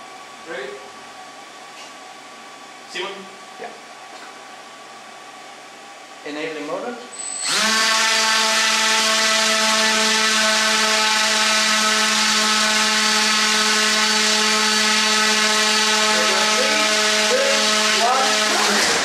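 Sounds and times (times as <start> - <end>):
drone motor whine: 7.1 - 19.0.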